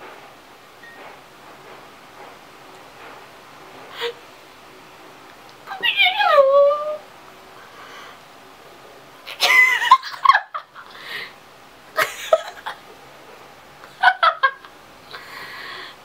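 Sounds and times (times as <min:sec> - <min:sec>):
woman laughing: 0:09.3 - 0:10.9, 0:12.0 - 0:12.8, 0:13.9 - 0:14.7.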